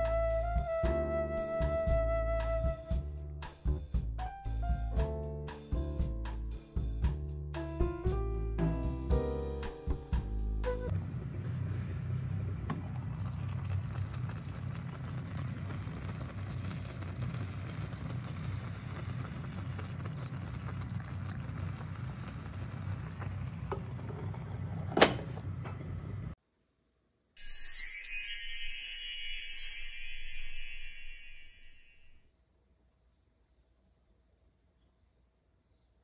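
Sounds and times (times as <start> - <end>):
stew bubbling in pot: 11.9 - 25.6.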